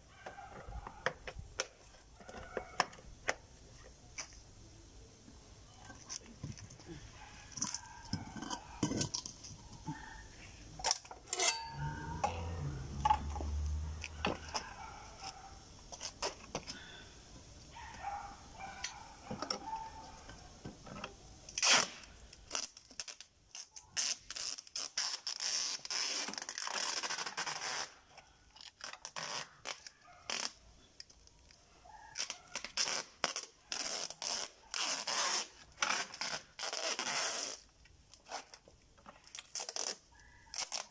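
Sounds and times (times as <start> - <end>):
knocks and scrapes on concrete: 5.8 - 10.2, 10.8 - 16.8
packing tape pulled off roll: 12.5 - 16.8, 21.5 - 40.9.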